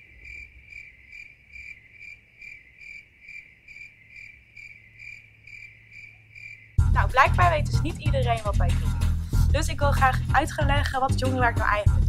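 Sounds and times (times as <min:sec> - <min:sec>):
cricket chirping: 0:00.0 - 0:06.8.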